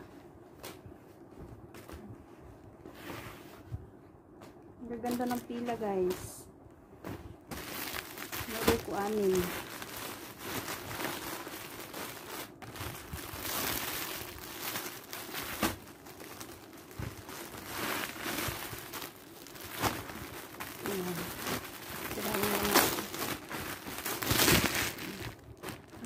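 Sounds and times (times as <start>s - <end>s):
plastic packaging crinkling: 4.9s - 6.4s, 7.5s - 26.0s.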